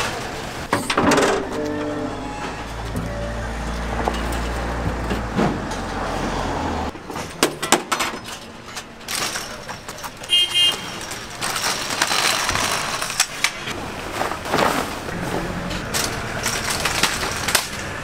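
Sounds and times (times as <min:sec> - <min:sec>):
metal frame knocks and clanks: 0:00.7 - 0:06.0
folding struts rattling scrape: 0:07.1 - 0:18.0.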